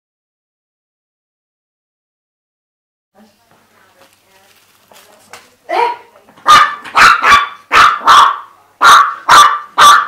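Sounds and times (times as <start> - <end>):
small dog barking: 5.7 - 10.0.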